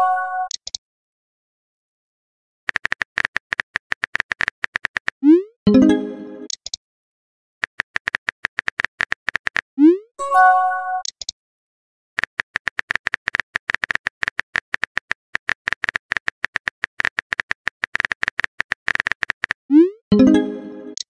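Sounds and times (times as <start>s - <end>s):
rapid keyboard tap clicks: 2.7s - 5.2s, 7.6s - 9.6s, 12.2s - 19.6s
multi-tone message chime: 5.7s - 6.5s, 10.2s - 11.0s, 20.1s - 21.0s.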